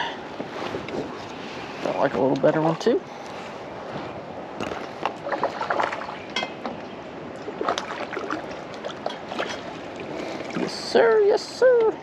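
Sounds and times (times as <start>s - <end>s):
water splashing: 4.6s - 12.0s.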